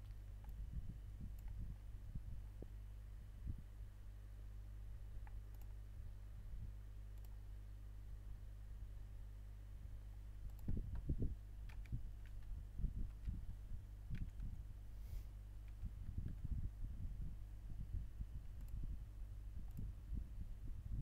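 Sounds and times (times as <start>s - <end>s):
computer mouse clicks: 0.0s - 0.6s, 1.4s - 1.6s, 5.2s - 5.8s, 7.2s - 7.4s, 10.1s - 13.4s, 14.1s - 14.6s, 15.6s - 16.4s, 18.6s - 18.8s, 19.6s - 19.9s
low electrical hum: 0.0s - 21.0s
keystrokes: 1.4s - 1.6s, 5.2s - 5.8s, 10.1s - 13.4s, 14.1s - 14.6s.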